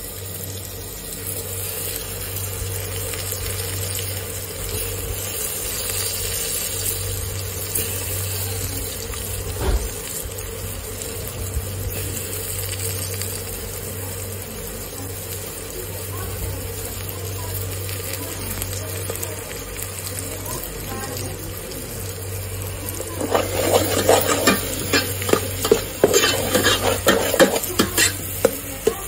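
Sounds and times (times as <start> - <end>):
constant low hum: 0.0 - 29.0
pot of broth bubbling: 21.7 - 29.0.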